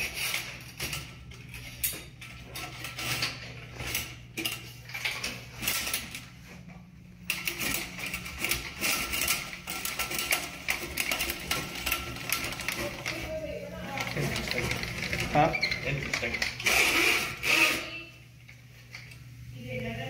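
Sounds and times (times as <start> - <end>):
auger cable rattling and clicking: 0.0 - 6.3, 7.3 - 16.9.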